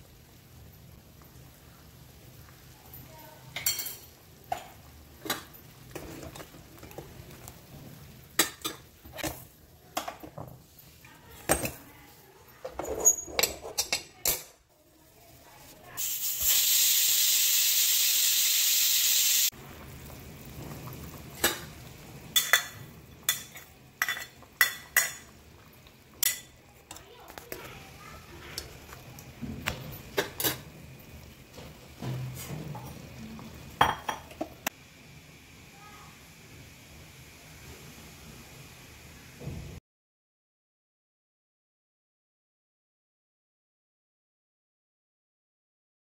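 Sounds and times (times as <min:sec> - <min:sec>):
utensils clinking on metal pot: 0:03.6 - 0:07.0, 0:12.6 - 0:14.6, 0:22.3 - 0:25.3, 0:29.9 - 0:30.7
steam hissing from vent: 0:15.5 - 0:20.6.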